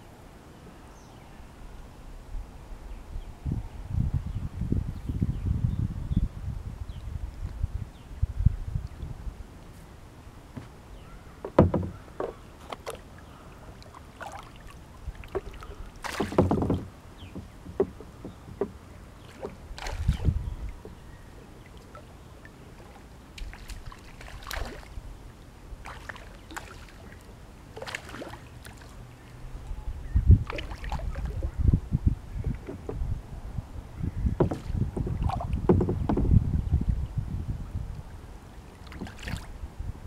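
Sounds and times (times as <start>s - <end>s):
knocks against kayak hull: 11.4s - 13.0s, 15.3s - 18.8s, 32.4s - 33.1s, 34.2s - 36.4s
water splashing: 11.6s - 20.8s, 21.6s - 25.0s, 25.8s - 29.0s, 30.4s - 31.5s, 34.4s - 35.8s, 38.7s - 39.6s.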